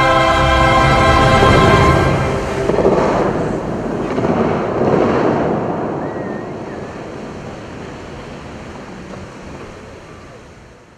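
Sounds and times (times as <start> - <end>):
fountain jets hissing: 0.0 - 10.9
water raining onto lake: 0.0 - 10.9.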